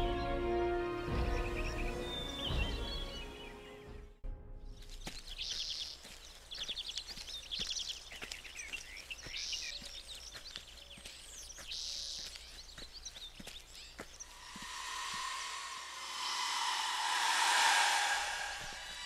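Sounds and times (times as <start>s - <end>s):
birds calling softly: 1.0s - 19.0s
footsteps on forest floor: 4.7s - 15.6s.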